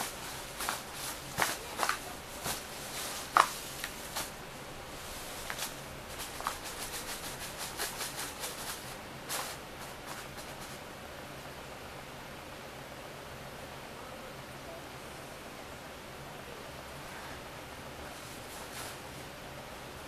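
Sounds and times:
toy rustling and crinkling: 0.0s - 10.8s.

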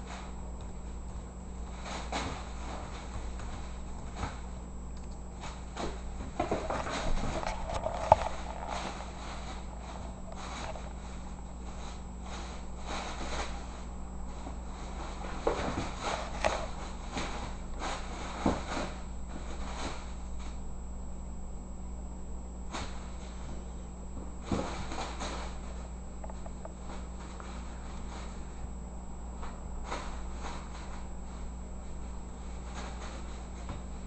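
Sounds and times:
steady low hum: 0.0s - 34.0s
bag rustling and crinkling: 5.4s - 20.2s.

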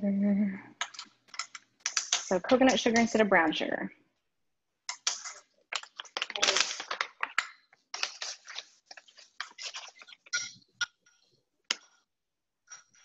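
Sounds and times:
sugar pouch rustling: 5.0s - 10.3s.

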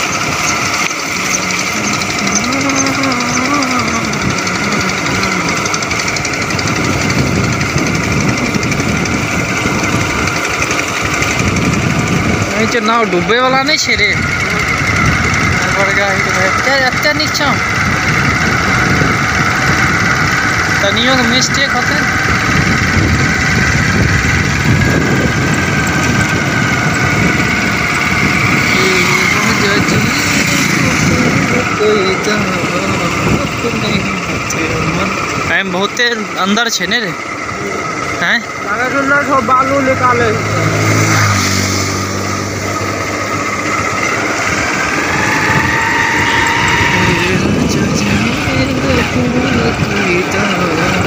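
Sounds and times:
small engine running: 0.0s - 51.0s
wind and road noise: 0.0s - 51.0s.

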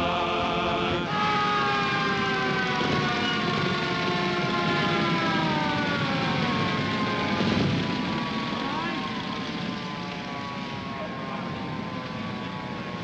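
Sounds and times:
men's chorus singing: 0.0s - 1.3s
low rumble of vehicle engines: 0.0s - 13.0s
siren wailing: 0.0s - 13.0s.

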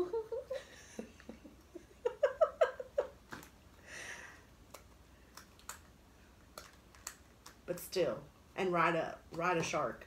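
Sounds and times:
woman giggling: 0.0s - 3.2s.

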